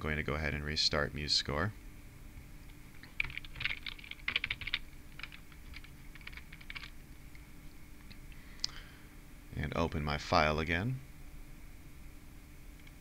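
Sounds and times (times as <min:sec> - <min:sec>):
typing on computer keyboard: 0:03.0 - 0:07.0.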